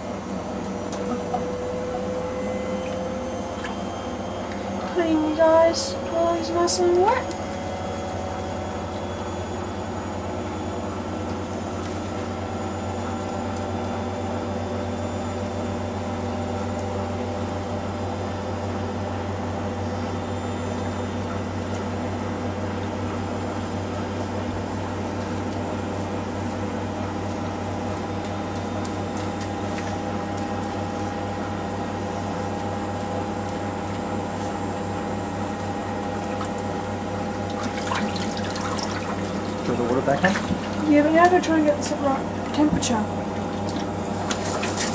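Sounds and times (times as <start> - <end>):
machine humming: 0.0 - 44.9
water running: 36.1 - 44.9.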